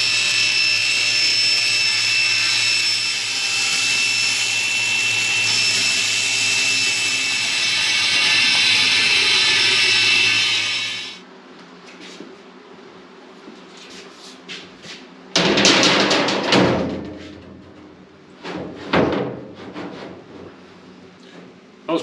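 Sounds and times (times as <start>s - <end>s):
table saw cutting metal: 0.0s - 11.2s
metal sheet clattering on tank: 15.4s - 20.2s.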